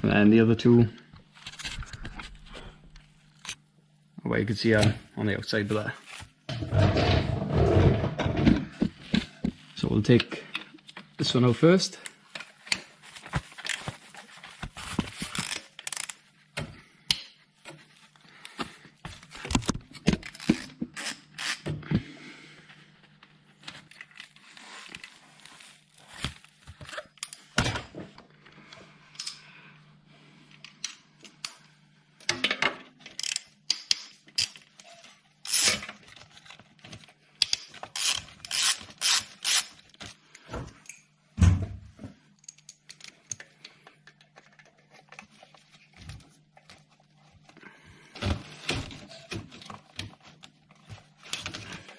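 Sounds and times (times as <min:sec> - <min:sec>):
hand ratchet clicking: 0:37.4 - 0:39.7.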